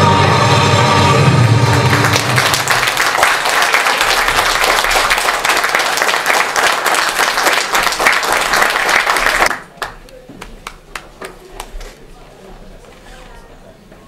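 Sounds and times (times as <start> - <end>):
dance music: 0.0 - 3.2
audience applauding: 1.4 - 11.6.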